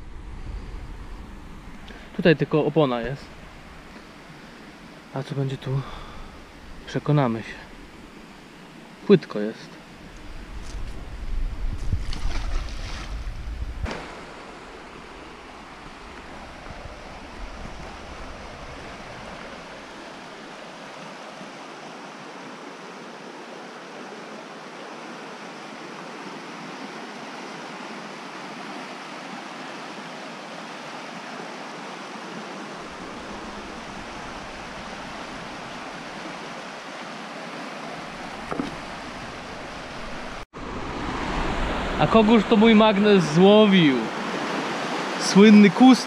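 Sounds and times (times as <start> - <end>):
wind rumble on microphone: 0.0 - 1.9, 10.1 - 20.3
magnet splashing into water: 11.8 - 14.4.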